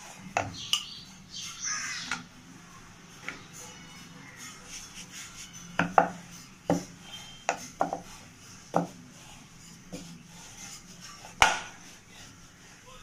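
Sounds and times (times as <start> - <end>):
faint rubbing of dough: 2.4 - 13.0
rolling pin clacking on wooden board: 7.8 - 8.1, 8.7 - 9.0.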